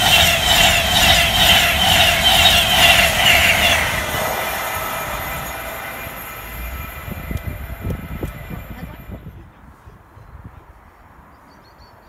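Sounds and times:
train wheels rushing on rails: 0.0 - 9.4.

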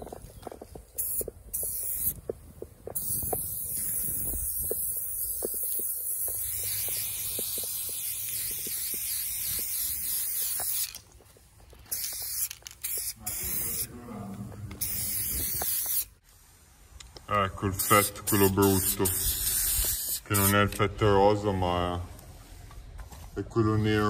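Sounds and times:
aerosol spray can spraying: 0.9 - 2.3, 2.9 - 11.1, 11.8 - 13.9, 14.8 - 16.2, 17.8 - 20.6.

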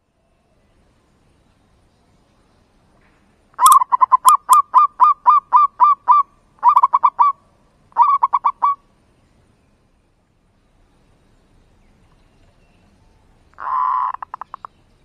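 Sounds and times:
dove cooing: 3.6 - 7.4, 8.0 - 8.8, 13.6 - 14.7.

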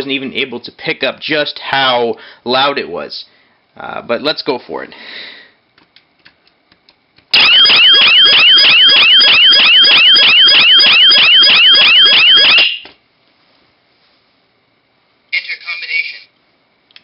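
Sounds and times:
alarm siren wailing: 7.4 - 12.9.

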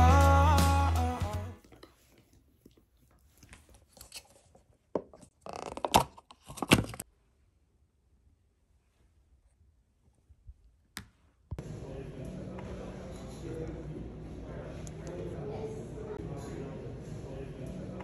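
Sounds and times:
background music: 0.0 - 1.6.

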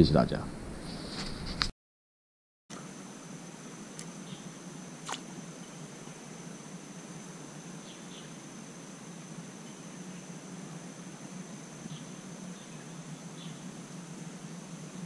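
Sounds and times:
high insect drone: 2.7 - 15.0.

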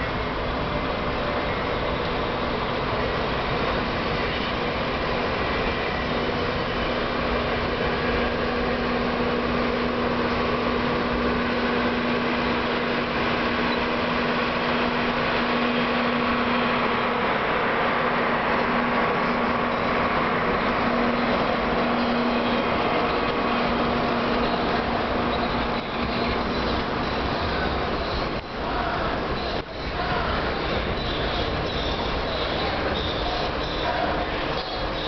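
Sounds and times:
steady hum: 0.0 - 35.0
train rumbling past: 0.0 - 35.0.

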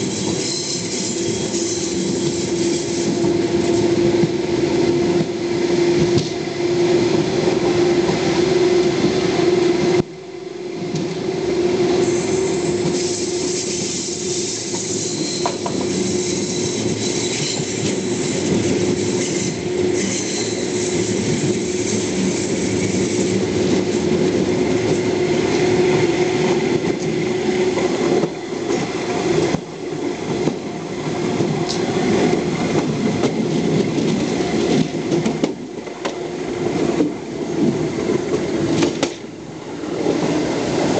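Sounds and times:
wheels squealing on curve: 0.0 - 3.3, 12.0 - 23.4
clickety-clack over rail joints: 0.0 - 6.4, 10.9 - 11.2, 12.0 - 40.9
train running hum: 0.0 - 40.9.

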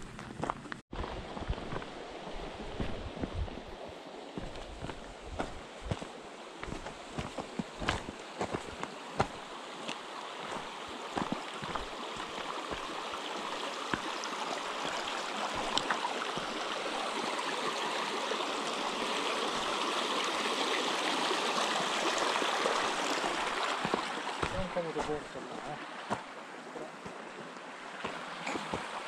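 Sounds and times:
footsteps crunching on stones: 0.0 - 3.6, 4.4 - 12.9, 23.8 - 26.3, 28.0 - 29.0
stream running over stones: 0.0 - 29.0.

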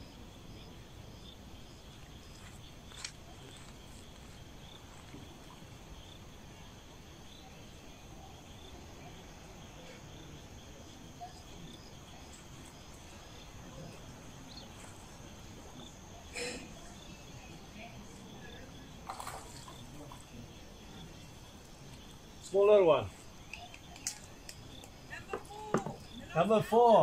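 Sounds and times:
insects chirping: 0.0 - 27.0.

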